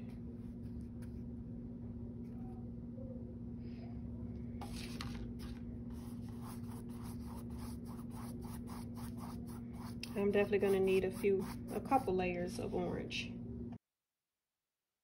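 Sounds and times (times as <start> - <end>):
scratchy brush strokes on canvas: 4.6 - 12.9.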